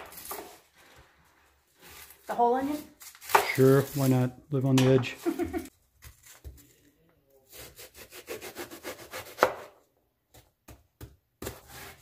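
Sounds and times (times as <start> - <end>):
knife chopping on a plastic board: 7.5 - 12.0.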